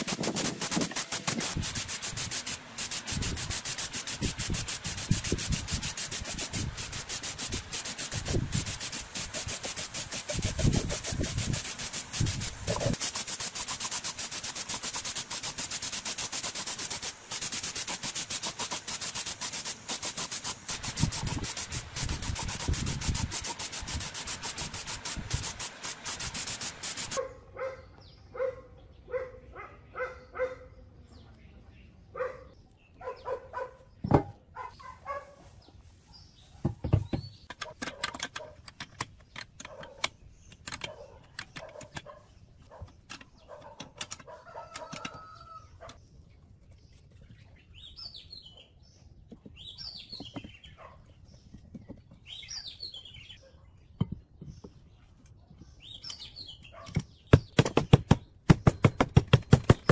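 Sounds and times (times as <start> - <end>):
paint spray gun hissing: 0.0 - 27.2.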